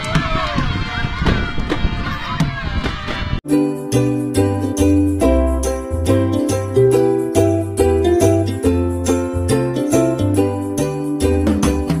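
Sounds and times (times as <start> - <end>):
music with bass and melody: 3.5 - 12.0.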